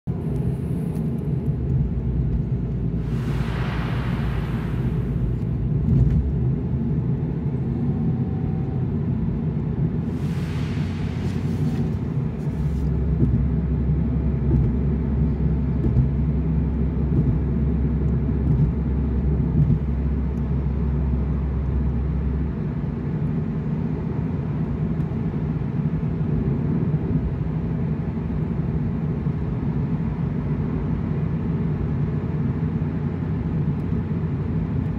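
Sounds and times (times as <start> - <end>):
car cabin rumble: 0.1 - 9.2, 10.9 - 25.6
deep hum: 0.1 - 25.3
brief hissing swells: 3.0 - 5.5, 10.0 - 12.8.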